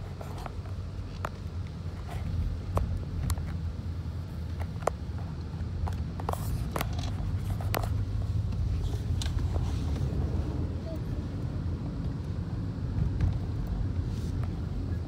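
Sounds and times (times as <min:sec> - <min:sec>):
car cabin road rumble: 0:00.0 - 0:15.0.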